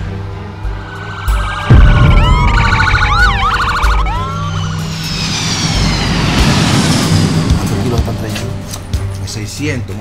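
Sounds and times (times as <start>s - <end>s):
low steady drone: 0.0s - 9.2s
siren falling wails: 0.5s - 7.0s
police siren yelp: 0.8s - 5.0s.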